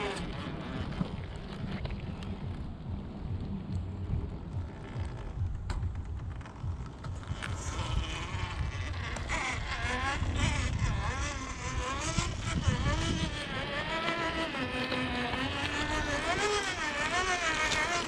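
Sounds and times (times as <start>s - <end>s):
low rumble: 0.0s - 18.0s
toy car motor whining: 7.1s - 18.0s.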